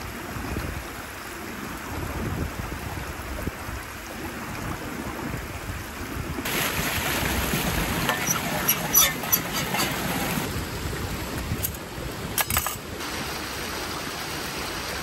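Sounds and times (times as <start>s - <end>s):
stream water rushing: 0.0s - 15.0s.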